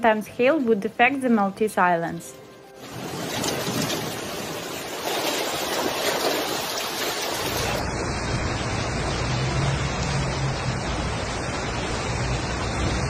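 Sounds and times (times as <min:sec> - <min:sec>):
floodwater pouring down street: 0:02.7 - 0:13.0
heavy rain: 0:02.8 - 0:13.0.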